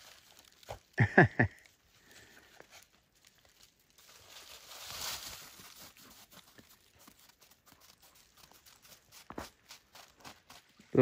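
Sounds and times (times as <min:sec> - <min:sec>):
dog rustling through snow: 0:02.7 - 0:10.8.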